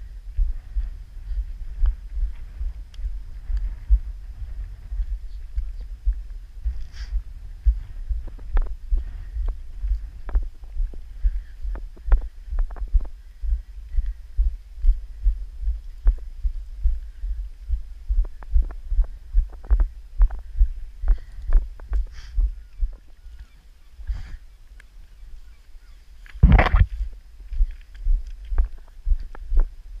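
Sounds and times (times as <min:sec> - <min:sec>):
wind rumbling on microphone: 0:00.0 - 0:30.0
footsteps crunching on stones: 0:26.3 - 0:29.3
microphone thuds: 0:26.4 - 0:27.1.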